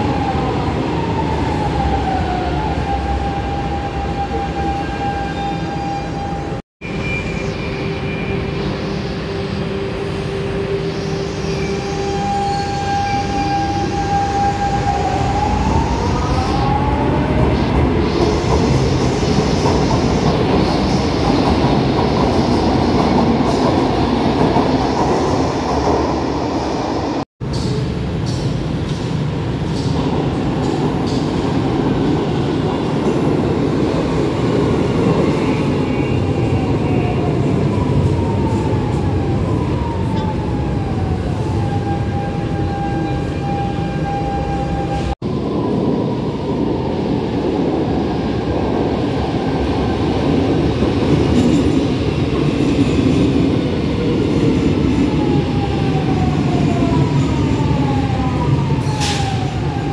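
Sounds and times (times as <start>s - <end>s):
train wheels rumbling on rail: 12.0s - 59.9s.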